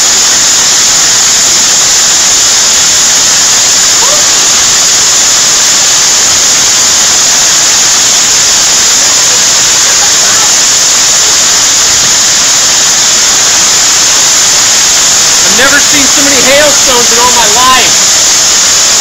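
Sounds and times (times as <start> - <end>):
heavy hail falling: 13.8 - 18.0.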